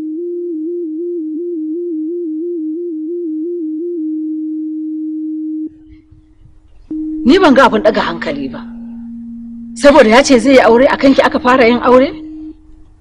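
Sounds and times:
wavering electronic tone: 0.0s - 6.0s, 6.9s - 10.4s.

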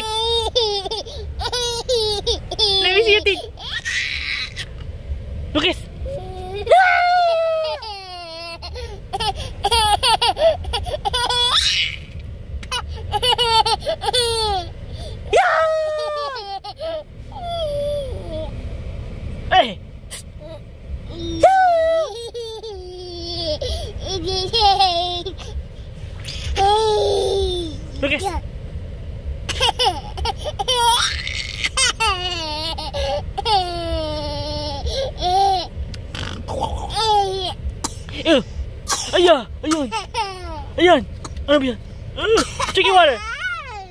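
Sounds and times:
toddler laughing: 0.0s - 4.8s, 6.1s - 14.7s, 15.6s - 18.5s, 20.4s - 25.6s, 26.3s - 27.9s, 29.5s - 37.7s, 39.6s - 40.8s
toddler gasping: 23.5s - 24.0s.

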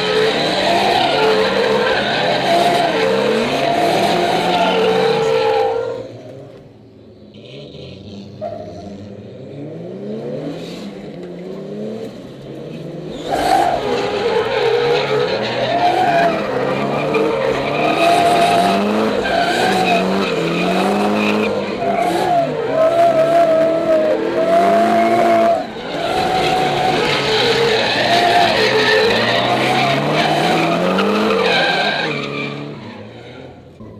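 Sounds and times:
car engine revving: 0.0s - 33.9s
tyres squealing: 13.1s - 33.5s.

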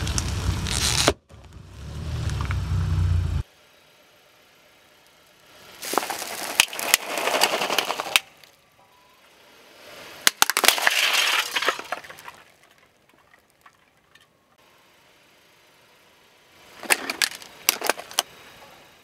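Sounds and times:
tyre crushing plastic and candy: 5.8s - 8.6s, 10.2s - 13.9s.

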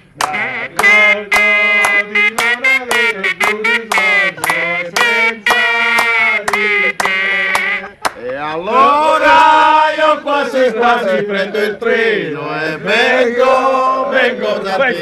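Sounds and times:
hand whistling tune: 0.3s - 8.0s.

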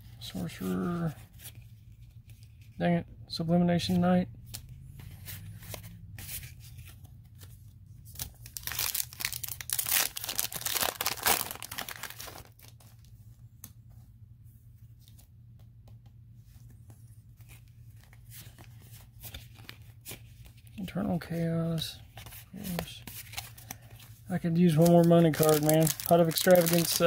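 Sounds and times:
low steady hum: 0.0s - 27.0s
cards rustling and clicking: 4.4s - 13.9s, 15.0s - 20.8s, 21.8s - 27.0s
foil pack tearing and crinkling: 8.4s - 12.7s, 24.7s - 27.0s.

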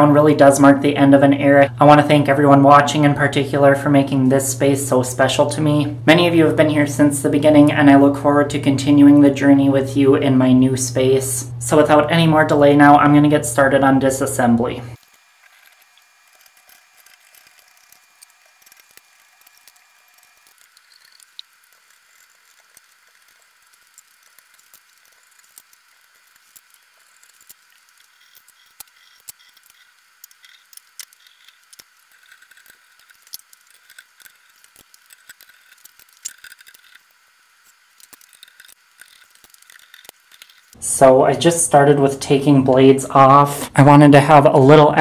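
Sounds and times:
ceiling fan parts clicking and rattling: 13.0s - 37.1s.

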